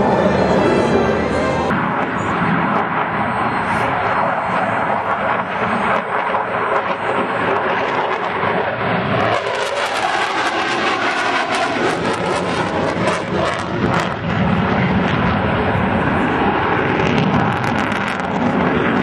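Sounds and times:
fighter jet flying overhead: 0.0s - 19.0s.

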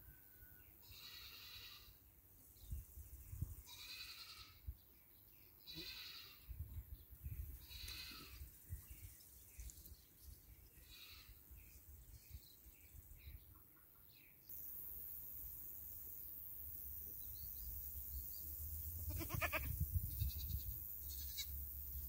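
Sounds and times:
goats bleating: 19.1s - 19.7s.

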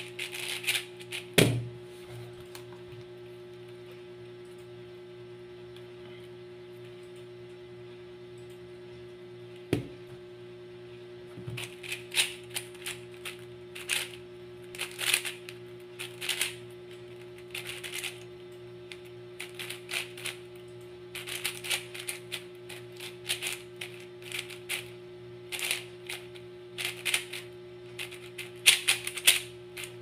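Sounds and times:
speed cube layers clicking: 28.3s - 29.4s.

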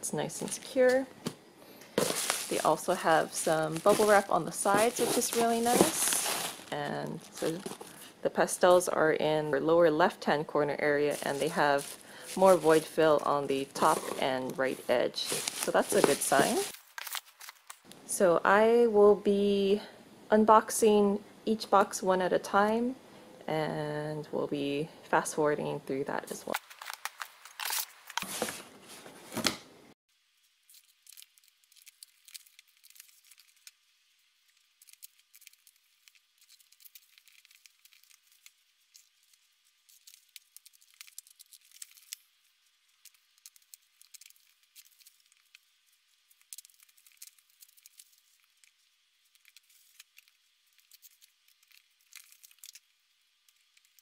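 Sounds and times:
packaging rustling and knocking: 2.0s - 8.0s, 15.2s - 17.6s, 26.6s - 29.6s.

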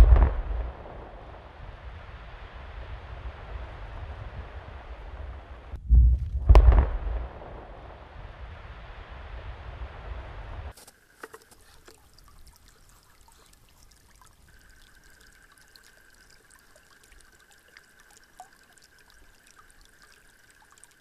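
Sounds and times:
low explosion rumble: 0.0s - 10.7s
ice ticking and crackling: 10.7s - 21.0s
water trickling: 10.9s - 21.0s.

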